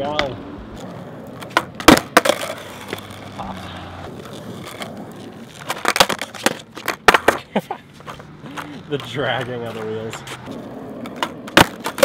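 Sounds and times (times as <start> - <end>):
skateboard knocking on asphalt: 0.0 - 12.0.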